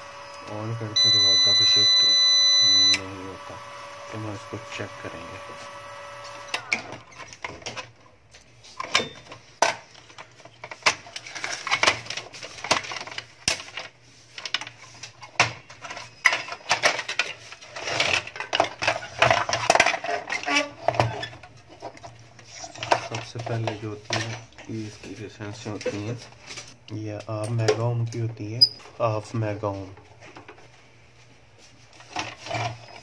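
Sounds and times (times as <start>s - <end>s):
plastic parts clicking and rattling: 6.8s - 24.8s.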